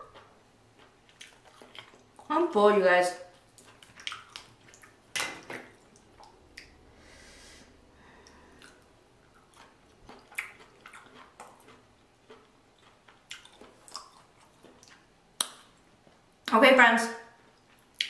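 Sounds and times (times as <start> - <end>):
close-miked chewing: 0.0 - 2.3, 3.2 - 6.9, 7.7 - 16.4, 17.5 - 18.0.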